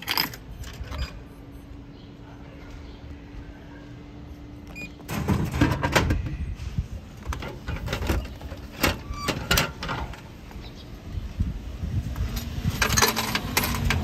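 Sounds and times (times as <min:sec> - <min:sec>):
vending machine humming: 0:00.0 - 0:10.8.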